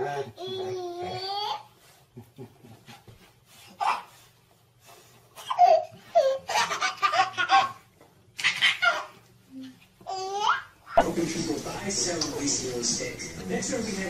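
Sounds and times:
baby laughing: 3.8 - 4.2, 5.4 - 9.2, 10.1 - 11.0.

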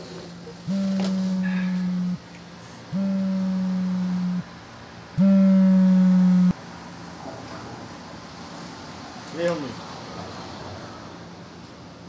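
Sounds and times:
phone vibrating on hard surface: 0.7 - 2.3, 2.9 - 4.5, 5.2 - 6.6.

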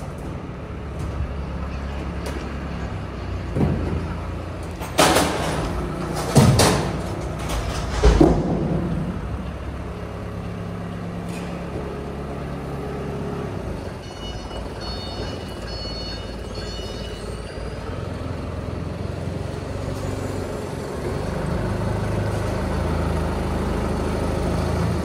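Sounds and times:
metal bangs and clanks: 0.0 - 11.7
diesel engine idling: 8.5 - 25.0.

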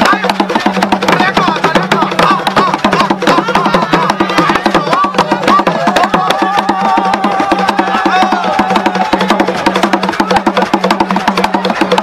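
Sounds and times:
fast dance drumming: 0.0 - 12.0
high voice singing: 1.5 - 9.2.

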